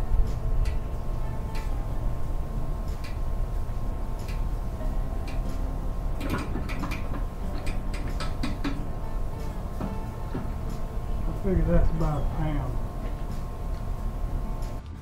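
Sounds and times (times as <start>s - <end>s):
steady low hum: 0.0s - 15.0s
crank clicks and knocks: 5.2s - 9.0s, 9.6s - 10.8s.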